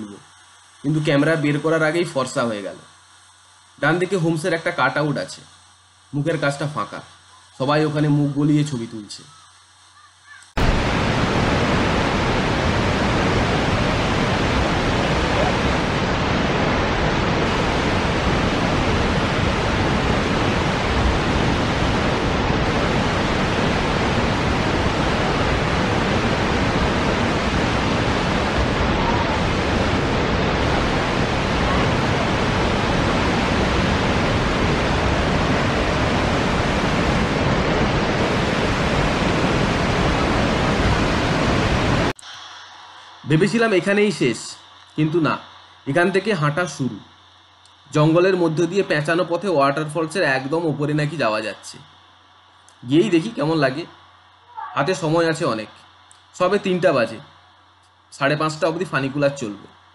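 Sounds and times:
waterfall rushing: 0:10.6 - 0:45.5.

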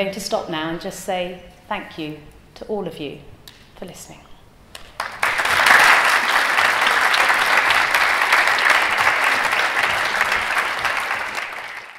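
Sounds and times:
audience applauding: 0:04.8 - 0:11.9.

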